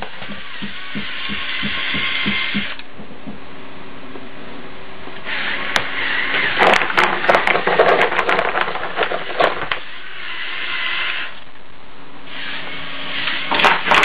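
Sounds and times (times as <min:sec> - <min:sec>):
stones clattering: 0:06.5 - 0:09.8
electric motors whining: 0:08.9 - 0:11.5.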